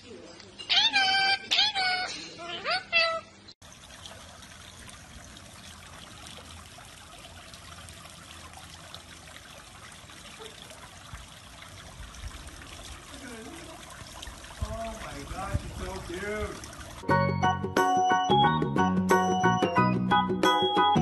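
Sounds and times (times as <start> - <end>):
water trickling: 3.6 - 17.1.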